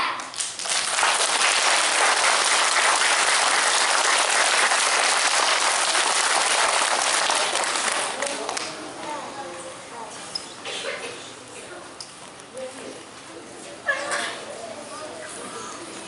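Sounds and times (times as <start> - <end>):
audience applause: 0.5 - 8.6.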